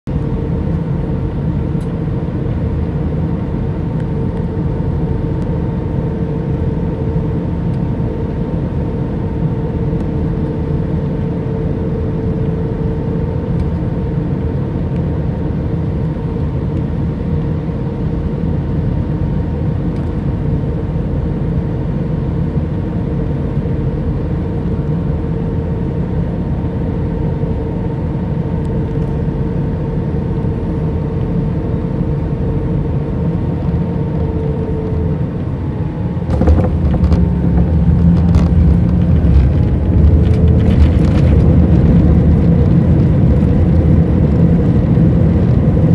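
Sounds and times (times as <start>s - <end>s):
airplane cabin engine drone: 0.1s - 45.9s
steady mid-pitched hum: 24.8s - 45.9s.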